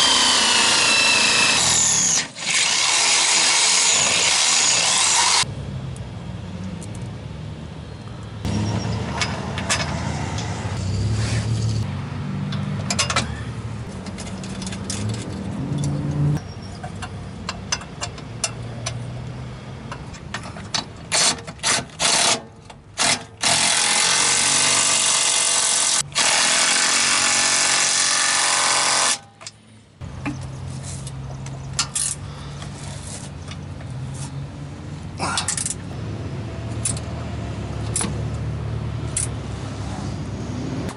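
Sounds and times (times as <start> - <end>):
power drill boring into steel: 0.0 - 5.4.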